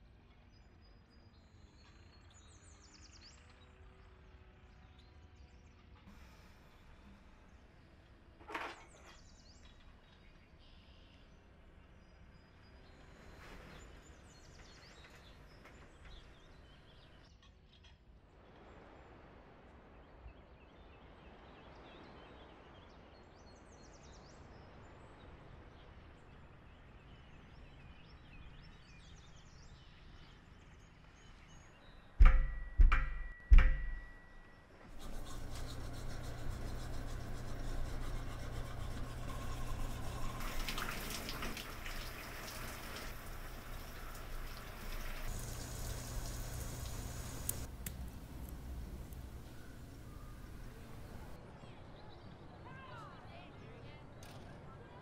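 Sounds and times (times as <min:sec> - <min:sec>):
heavy deep thuds: 0:32.2 - 0:34.2
running water: 0:35.0 - 0:51.4.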